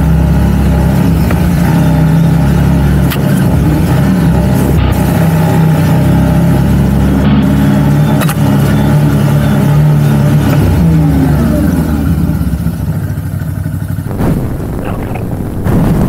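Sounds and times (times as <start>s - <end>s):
atv engine running: 0.0s - 16.0s.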